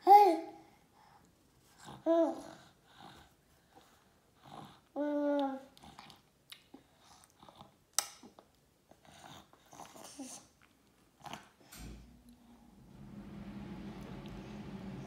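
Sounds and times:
baby mouth sounds eating: 5.3 - 8.5
steady low hum: 11.7 - 15.0.

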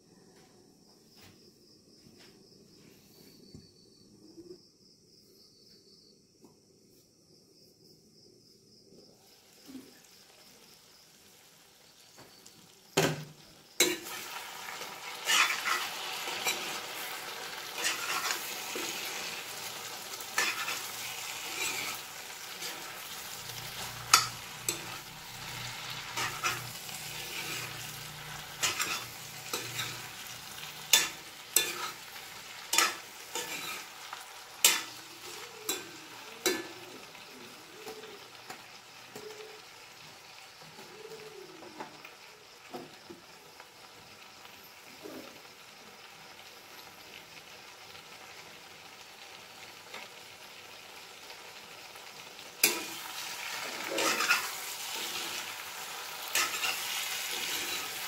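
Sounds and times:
food sizzling in pan: 9.0 - 58.0.

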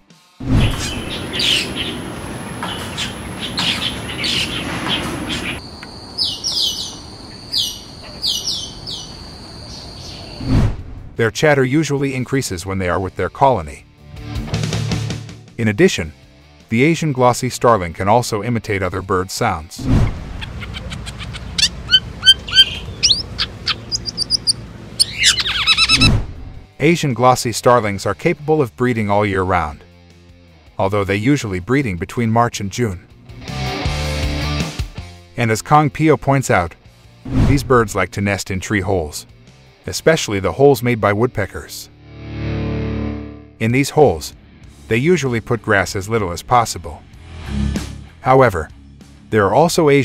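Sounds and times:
birds whistling downward: 0.5 - 10.5, 20.4 - 26.2
birds chattering calls: 0.6 - 10.4, 20.4 - 26.1
starling chattering: 20.4 - 26.1.

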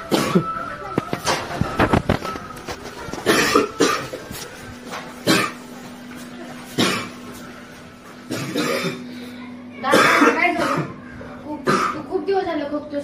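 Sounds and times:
man coughing: 3.2 - 4.1, 5.2 - 5.6, 6.8 - 7.2, 8.3 - 9.1, 9.9 - 10.9, 11.6 - 12.0.

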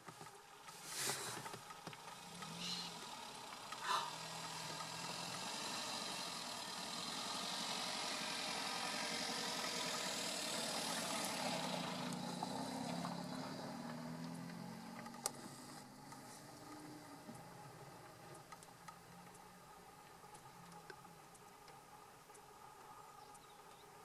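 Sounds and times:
vehicle engine idling: 0.0 - 24.0.

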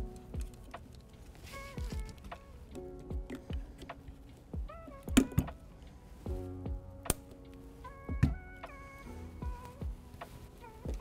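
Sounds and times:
low decaying beats: 6.3 - 7.1.

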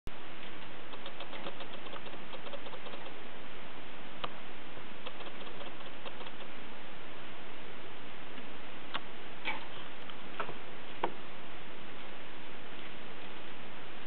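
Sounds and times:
sharp click: 0.9 - 3.2, 5.0 - 6.5.

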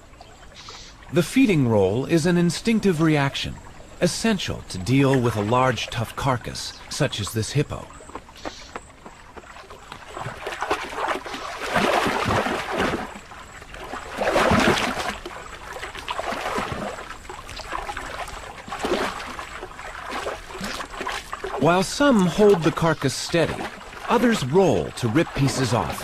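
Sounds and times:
water splashing and sloshing: 0.0 - 26.0.

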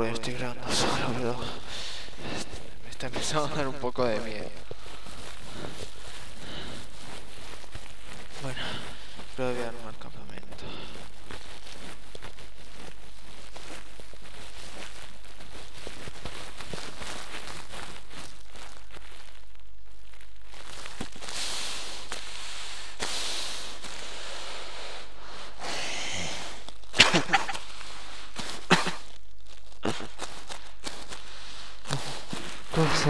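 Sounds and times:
recording hiss: 0.0 - 33.0
rustling: 0.0 - 33.0.

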